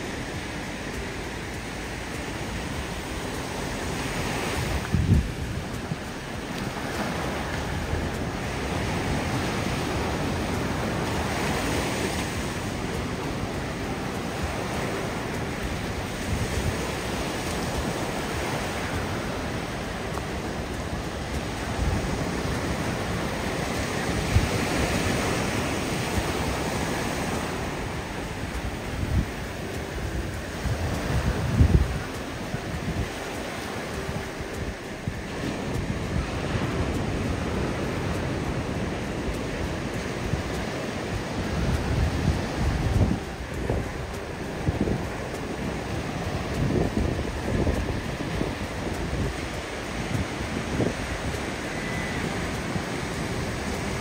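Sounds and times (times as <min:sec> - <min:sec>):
ocean surf breaking: 0:00.0 - 0:54.0
wind buffeting microphone: 0:00.0 - 0:54.0.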